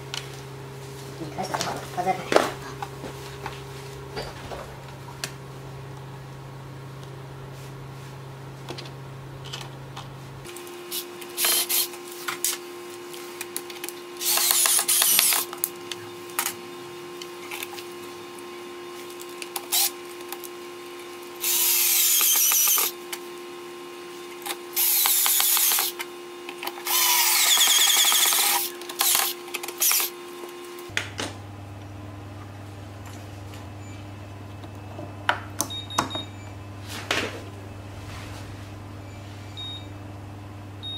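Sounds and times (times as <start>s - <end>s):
cordless screwdriver driving screws: 14.2s - 15.4s.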